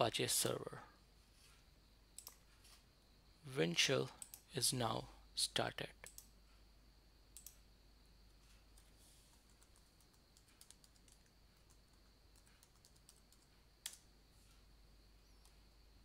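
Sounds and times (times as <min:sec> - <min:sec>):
mouse clicks: 0:02.2 - 0:02.4, 0:07.4 - 0:07.6
keyboard typing: 0:02.2 - 0:02.5, 0:04.2 - 0:04.4, 0:06.0 - 0:06.3, 0:07.4 - 0:07.6, 0:08.8 - 0:14.0.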